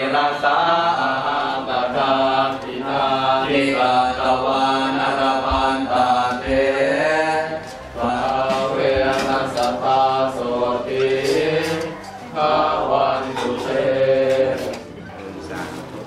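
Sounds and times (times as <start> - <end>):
monks chanting in monotone: 0.0 - 16.0.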